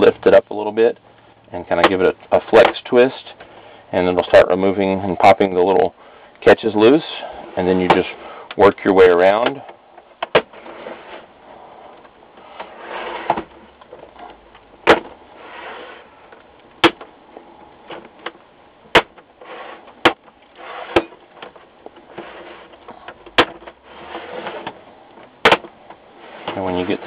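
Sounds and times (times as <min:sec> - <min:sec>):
plastic scraping: 0:07.3 - 0:27.0.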